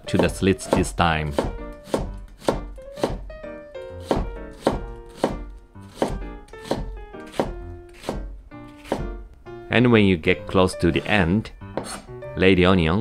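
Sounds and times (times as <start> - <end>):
knife slicing onion on board: 0.1 - 3.3, 4.0 - 9.1, 11.8 - 12.1.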